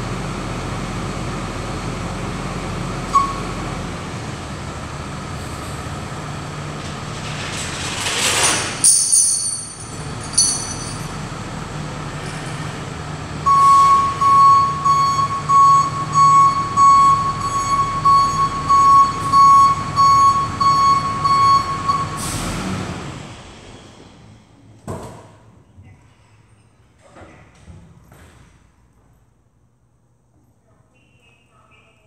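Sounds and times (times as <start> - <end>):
truck engine running: 0.0 - 8.2, 9.6 - 24.6
backup alarm beeping: 3.1 - 3.6, 13.4 - 22.2.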